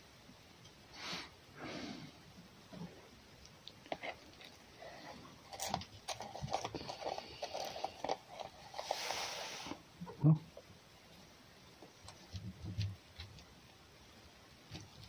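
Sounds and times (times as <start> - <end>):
short hiss: 0.9 - 2.1, 8.8 - 9.8
fox crunching and clicking: 5.4 - 8.8, 11.8 - 13.8, 14.6 - 15.0.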